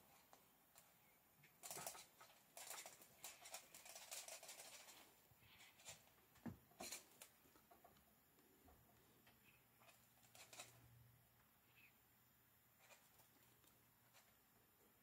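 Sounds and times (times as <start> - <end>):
cat claws scratching on wood: 1.6 - 6.2, 6.8 - 7.9, 9.8 - 10.9, 12.8 - 14.4.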